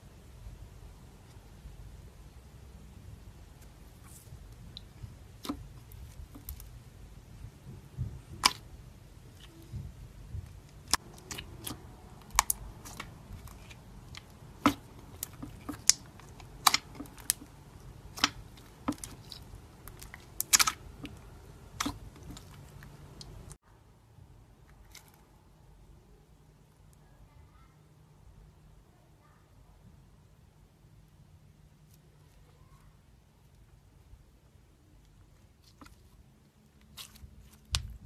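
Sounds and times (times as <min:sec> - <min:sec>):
slime popping and clicking: 0:10.8 - 0:17.5, 0:18.1 - 0:21.2.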